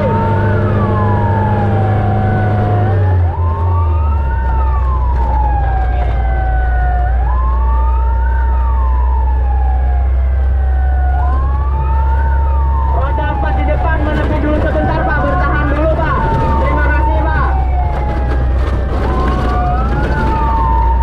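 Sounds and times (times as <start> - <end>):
electronic siren wailing: 0.0 - 21.0
truck engine drone: 0.0 - 21.0.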